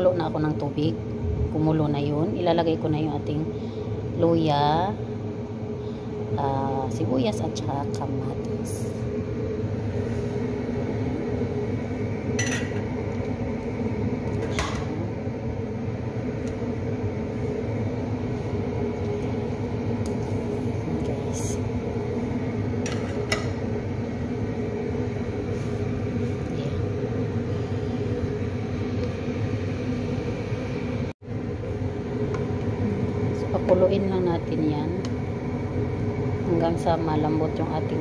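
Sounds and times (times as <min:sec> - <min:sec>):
plate clinking against pot: 0:12.4 - 0:12.8.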